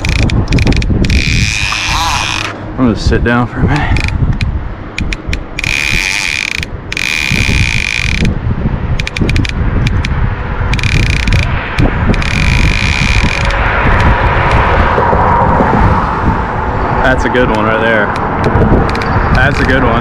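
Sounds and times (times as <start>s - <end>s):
fishing reel buzzing: 0.0s - 2.6s, 5.0s - 8.4s, 9.0s - 10.1s, 10.7s - 14.6s
reel clicks: 0.0s - 2.6s, 3.9s - 8.4s, 9.0s - 14.7s, 17.5s - 19.8s
steady low rumble: 0.0s - 20.0s.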